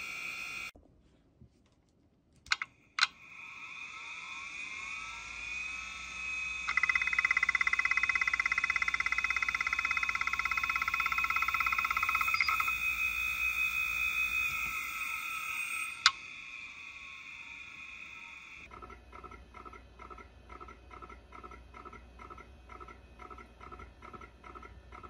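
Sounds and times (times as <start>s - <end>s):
hard drive spindle whining: 0.0s - 0.7s, 2.5s - 19.7s
fast rattling buzz: 3.0s - 18.7s.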